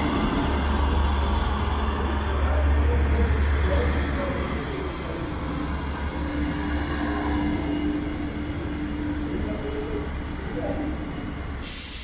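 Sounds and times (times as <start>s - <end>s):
diesel train engine rumble: 0.0s - 12.0s.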